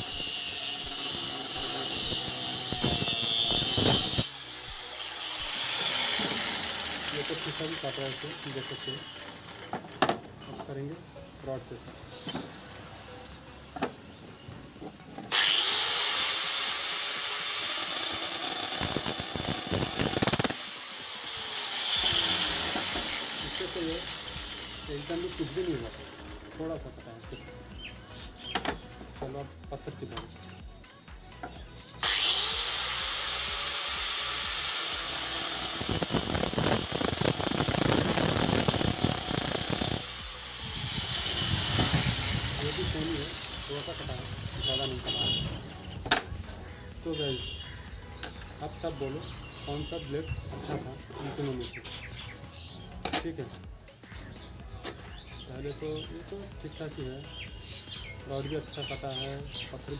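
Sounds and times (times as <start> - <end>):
cutting machine running whir: 0.0 - 9.7, 15.3 - 26.4, 32.0 - 45.4
power cutter grinding steel rod: 0.0 - 10.7, 15.3 - 27.5, 31.4 - 59.9.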